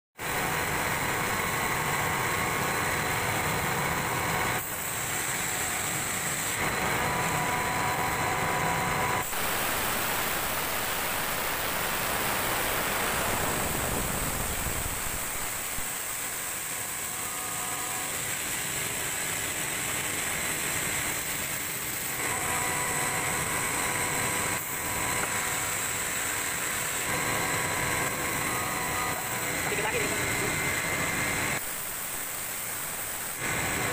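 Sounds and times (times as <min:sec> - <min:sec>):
exhaust fan air rushing: 0:00.2 - 0:17.1
faint motor hum: 0:00.2 - 0:33.9.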